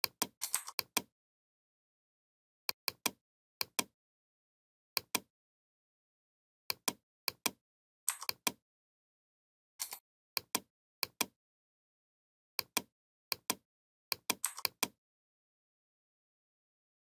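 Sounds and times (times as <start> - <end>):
mouse button clicking: 6.8 - 8.6, 12.6 - 15.0.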